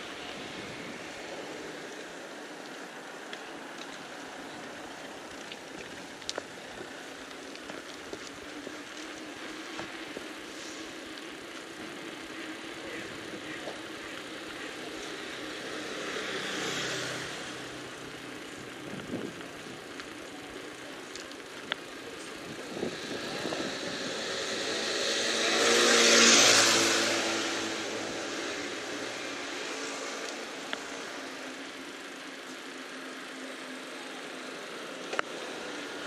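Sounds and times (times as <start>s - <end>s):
vehicles passing: 0.0s - 36.0s.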